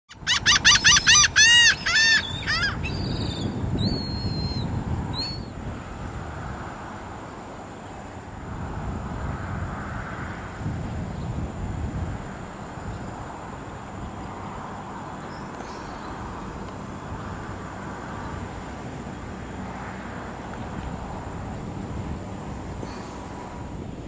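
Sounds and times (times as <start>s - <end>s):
seabird calls: 0.1s - 5.5s
wind on microphone: 0.1s - 24.0s.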